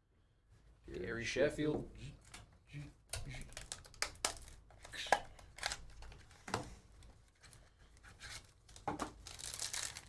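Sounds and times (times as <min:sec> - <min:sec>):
foil pack rustling: 0:09.1 - 0:10.0.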